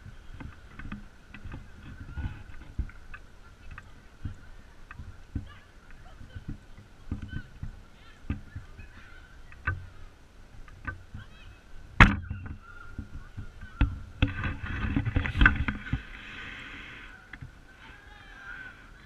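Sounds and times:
distant children shouting: 1.8s - 2.7s, 3.4s - 10.3s, 11.1s - 14.6s, 16.8s - 19.0s.

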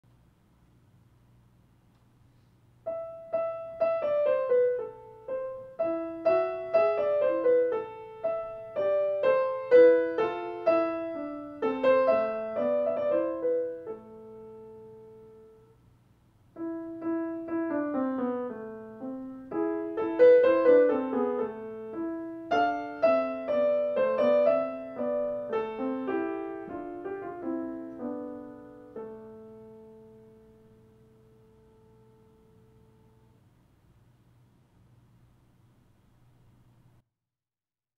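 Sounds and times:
grand piano melody: 2.8s - 15.8s, 16.5s - 33.4s.

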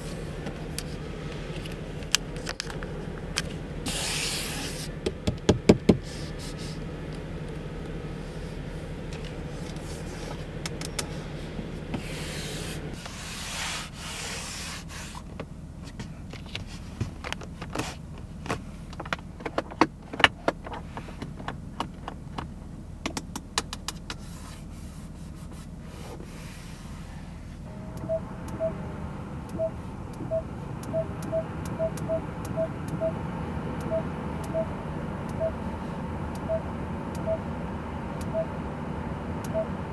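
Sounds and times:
low steady hum: 0.0s - 19.4s, 20.0s - 39.9s
fingertips tapping dashboard controls: 5.0s - 8.0s, 27.6s - 39.9s
short electronic beeps: 28.0s - 28.8s, 29.5s - 33.2s, 33.8s - 35.6s, 36.4s - 37.5s, 39.5s - 39.8s.

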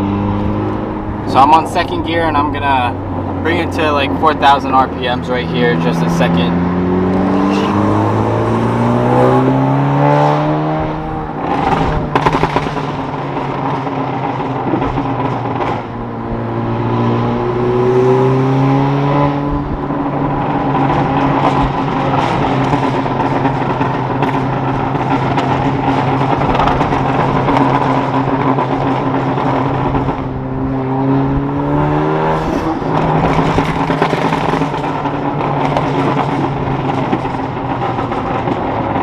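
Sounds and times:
car engine revving: 0.0s - 39.0s
exhaust crackling pops: 11.1s - 16.6s, 19.5s - 30.9s, 32.4s - 39.0s.

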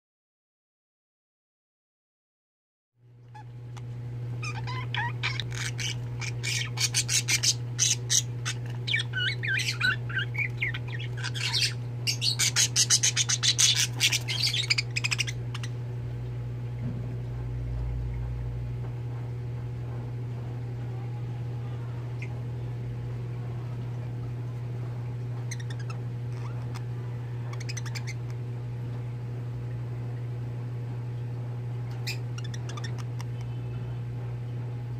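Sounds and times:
steady low hum: 3.0s - 34.9s
budgerigars chirping and chattering: 4.4s - 15.8s, 25.4s - 28.4s, 31.9s - 33.3s.

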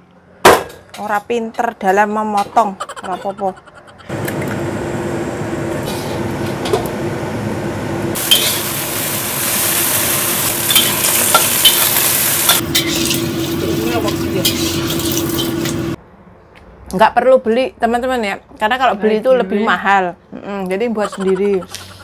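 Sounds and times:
oil sizzling in a wok: 8.2s - 16.0s.

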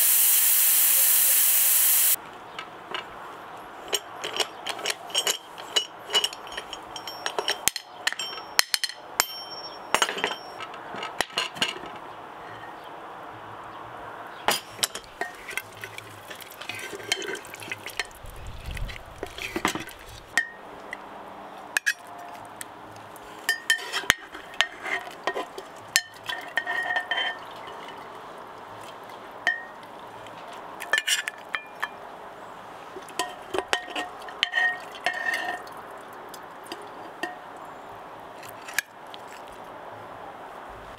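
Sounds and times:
steady hiss: 0.0s - 2.2s
utensils clinking on cookware: 3.8s - 10.7s, 14.5s - 18.2s, 23.5s - 28.1s, 33.1s - 35.7s.

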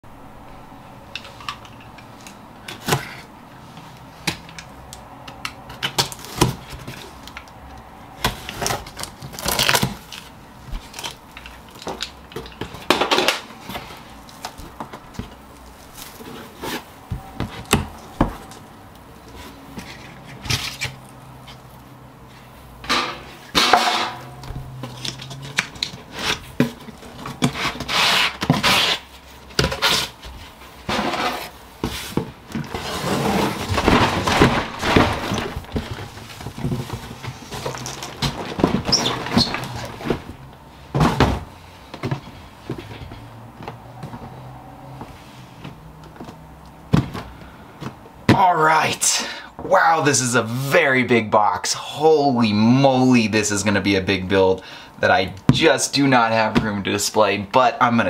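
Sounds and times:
cardboard box being opened: 24.7s - 40.4s.

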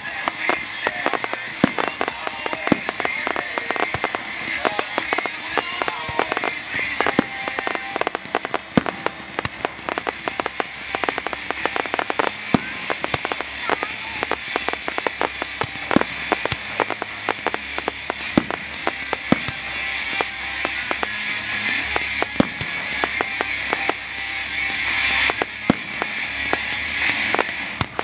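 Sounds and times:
fireworks popping and crackling: 0.0s - 28.0s
loud firework bangs: 0.0s - 28.0s.

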